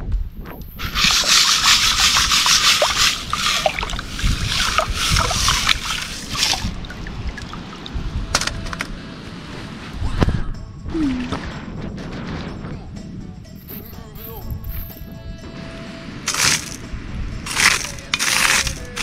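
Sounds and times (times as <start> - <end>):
sieve clicks: 0.6 - 8.0, 16.3 - 16.8, 17.5 - 19.0
water sloshing and splashing: 0.7 - 8.2
water trickling: 0.8 - 8.2.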